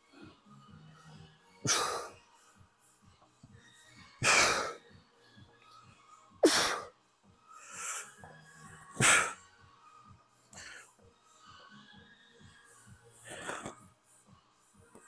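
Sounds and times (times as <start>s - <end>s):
soft breathing: 7.5s - 9.4s, 10.4s - 12.0s.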